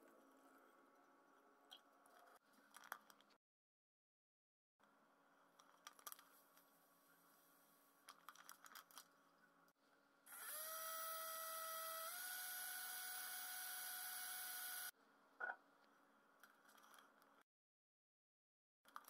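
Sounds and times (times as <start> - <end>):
cordless drill motor whine: 10.3 - 14.9.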